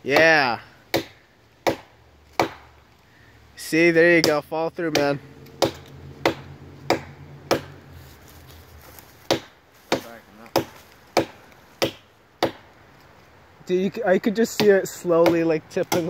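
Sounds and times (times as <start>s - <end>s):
hatchet chopping tree trunk: 0.0s - 2.9s, 4.1s - 7.9s, 9.2s - 12.8s, 14.5s - 16.0s.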